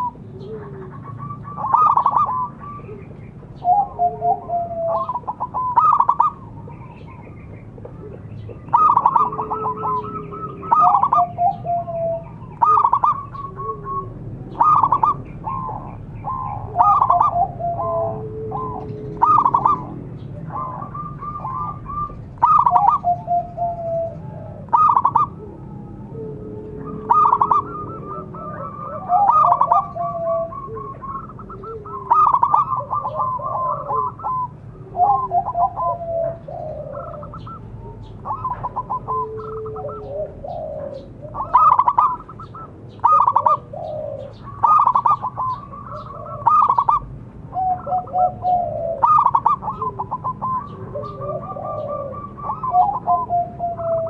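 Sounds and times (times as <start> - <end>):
dove cooing: 0.0 - 54.0
lower faint coo: 0.0 - 54.0.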